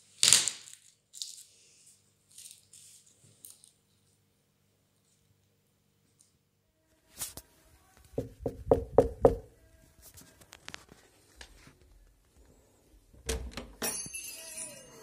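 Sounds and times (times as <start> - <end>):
knocking on door: 8.2 - 9.5.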